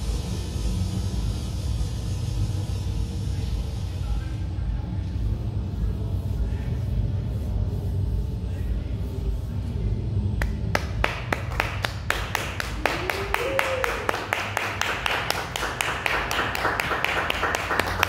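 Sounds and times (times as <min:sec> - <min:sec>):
audience clapping: 0:10.4 - 0:18.0.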